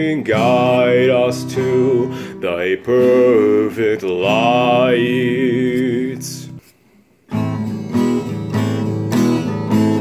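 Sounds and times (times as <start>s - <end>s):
man singing held note: 0.0s - 6.6s
acoustic guitar strumming: 0.0s - 6.7s, 7.3s - 10.0s.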